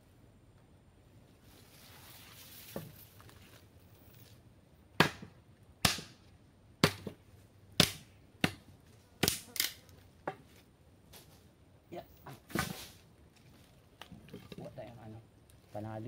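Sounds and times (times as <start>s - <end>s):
blade chopping wood: 5.0s - 6.2s, 6.8s - 7.2s, 7.8s - 8.6s, 9.2s - 9.7s.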